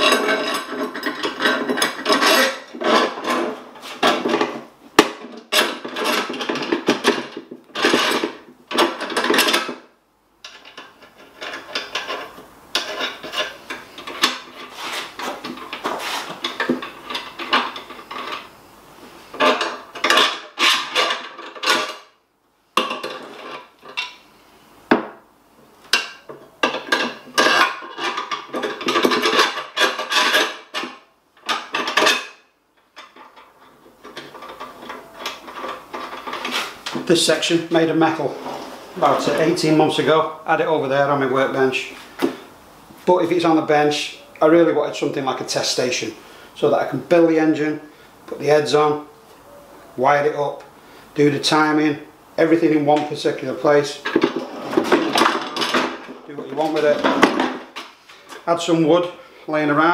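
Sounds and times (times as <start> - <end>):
metal bars scraping and clicking: 0.0 - 9.8, 10.4 - 18.5, 25.9 - 40.1, 52.4 - 58.6.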